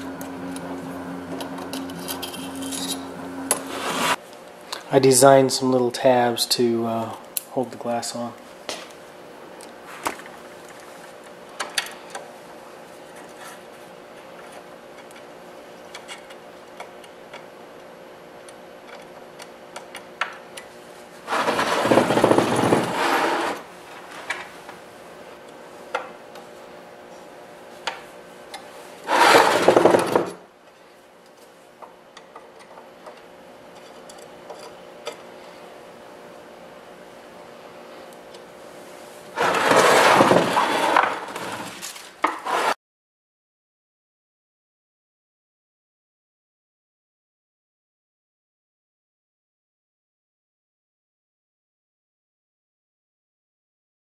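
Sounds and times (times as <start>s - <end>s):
glass plate scraping in frame: 1.4s - 4.2s, 21.3s - 23.6s, 39.4s - 41.8s.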